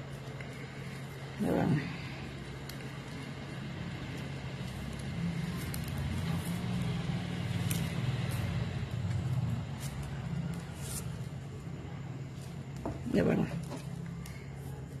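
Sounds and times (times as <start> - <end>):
plastic wire crackling: 0.0 - 11.4
low motor-like hum: 0.0 - 15.0.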